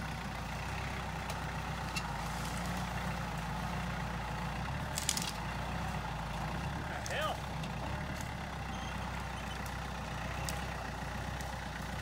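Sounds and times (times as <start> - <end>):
diesel tractor engine running: 0.0 - 12.0
wood snapping: 4.8 - 5.5.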